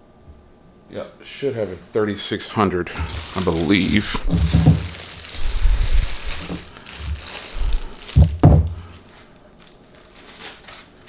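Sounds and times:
plastic bag crinkling: 0:02.9 - 0:11.0.

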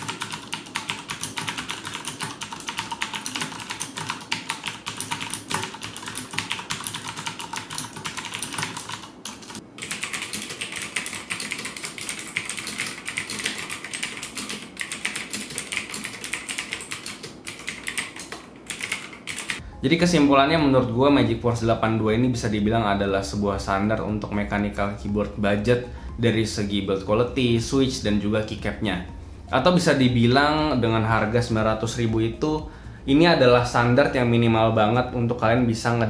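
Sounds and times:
typing on mechanical keyboard: 0:00.0 - 0:19.6.

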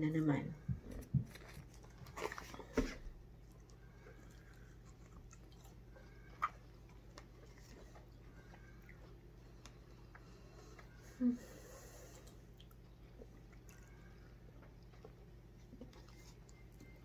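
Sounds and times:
person chewing: 0:00.9 - 0:11.0, 0:11.8 - 0:17.0.

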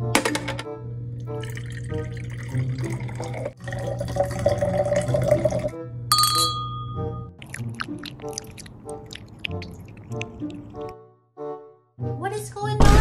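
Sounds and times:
liquid pouring into a glass: 0:01.2 - 0:06.5, 0:07.3 - 0:10.9
glass ringing: 0:04.0 - 0:07.3.

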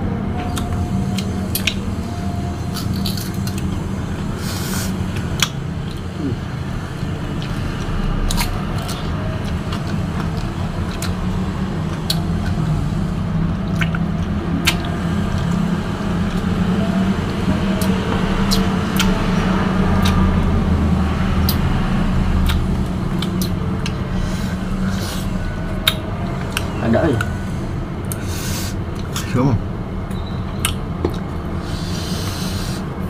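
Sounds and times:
low steady rumble: 0:00.0 - 0:33.0
wet chewing and biting: 0:07.4 - 0:12.7, 0:13.6 - 0:15.5, 0:19.9 - 0:20.3, 0:22.4 - 0:27.4.

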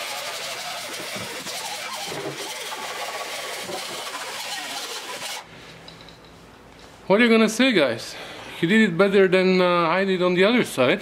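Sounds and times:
grinder grinding metal: 0:00.0 - 0:05.5.

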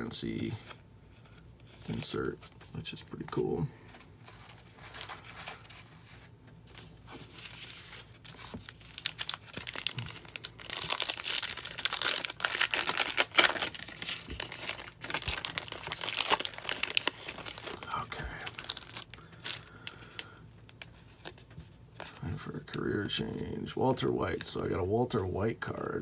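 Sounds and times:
foil wrapper tearing and crinkling: 0:07.4 - 0:21.3.

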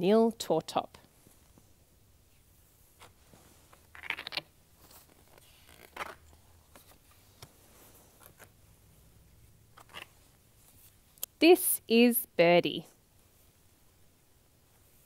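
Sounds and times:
book pages turning: 0:03.0 - 0:08.6, 0:09.7 - 0:11.0.

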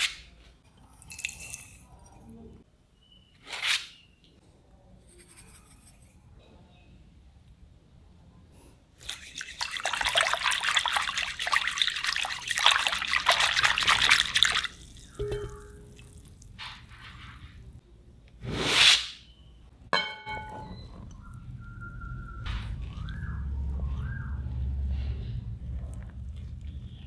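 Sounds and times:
whisk beating liquid in bowl: 0:09.1 - 0:14.8.

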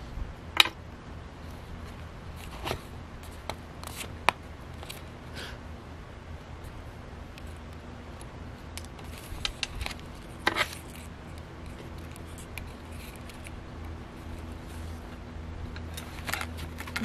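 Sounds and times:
low steady hum: 0:00.0 - 0:17.0
paper and cord rustling: 0:01.5 - 0:05.1.

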